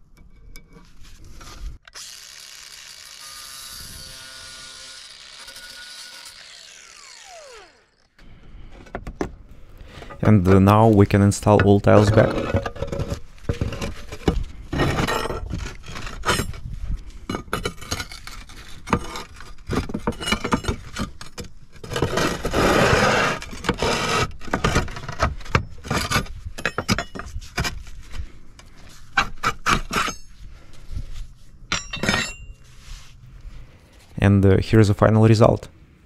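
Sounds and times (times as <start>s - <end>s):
roof tiles clinking and scraping: 9.8s - 28.0s.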